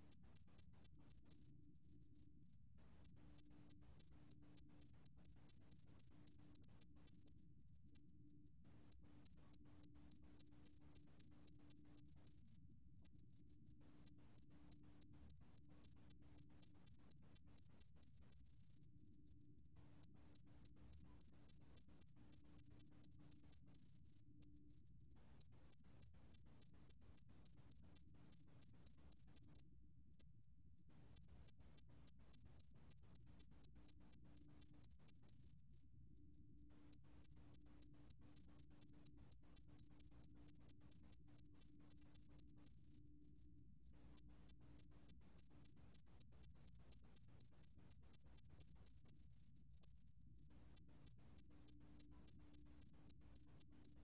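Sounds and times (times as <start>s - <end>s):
cricket chirping and trilling: 0.1s - 54.0s.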